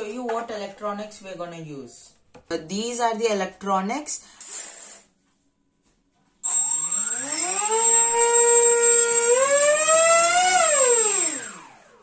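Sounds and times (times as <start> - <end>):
electric motor spinning propeller: 6.4 - 12.0
high whine of speed controller: 6.4 - 12.0.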